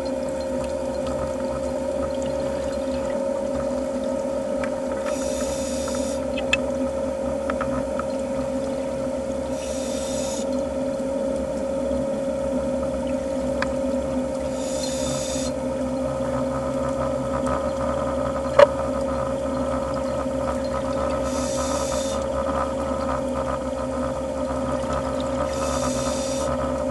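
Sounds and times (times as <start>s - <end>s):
underwater hum: 0.0s - 26.9s
scuba regulator hissing: 5.1s - 6.3s, 9.5s - 10.5s, 14.5s - 15.6s, 21.2s - 22.2s, 25.5s - 26.6s.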